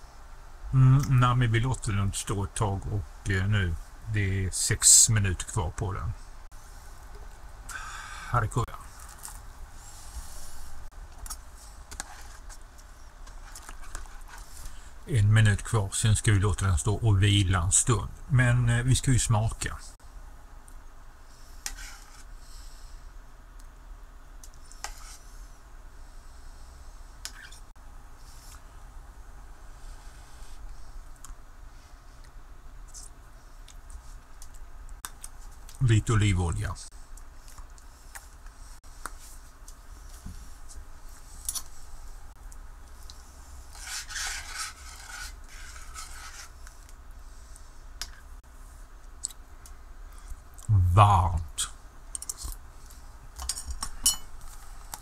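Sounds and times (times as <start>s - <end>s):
faint steady background noise: 0.0s - 55.0s
low steady hum: 0.0s - 55.0s
ladle scraping metal pot: 43.7s - 46.6s.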